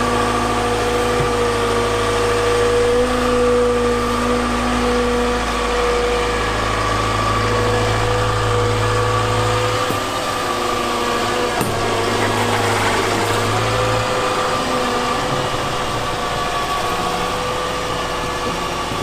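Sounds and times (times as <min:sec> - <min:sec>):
diesel engine and hydraulics running: 0:00.0 - 0:19.0
rotating brush sweeping snow: 0:12.0 - 0:14.1.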